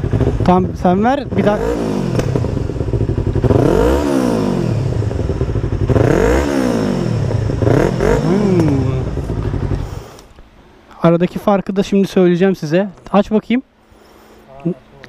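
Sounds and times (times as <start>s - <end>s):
motorcycle engine revving: 0.0s - 10.2s.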